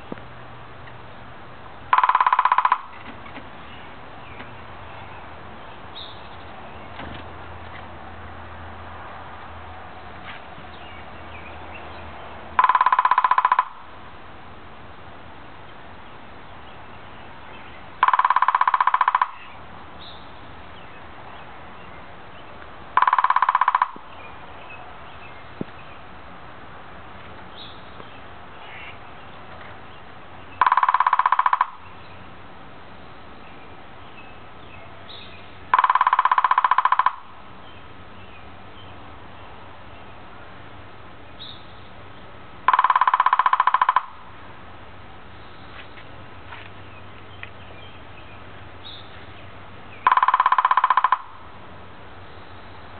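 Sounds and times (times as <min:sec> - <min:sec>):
woodpecker drumming on hollow wood: 0:01.9 - 0:03.5, 0:12.5 - 0:14.0, 0:18.0 - 0:19.6, 0:22.9 - 0:24.2, 0:30.5 - 0:32.0, 0:35.6 - 0:37.6, 0:42.6 - 0:44.4, 0:50.0 - 0:51.6.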